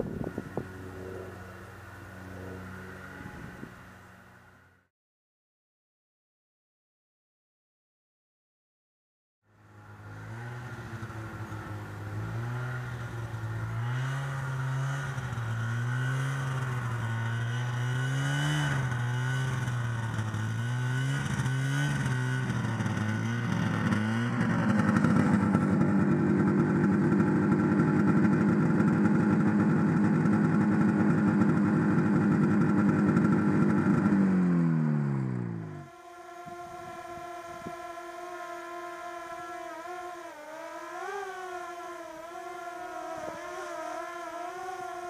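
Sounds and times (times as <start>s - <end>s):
snowmobile engine revving: 0.0s - 4.9s, 9.6s - 45.0s.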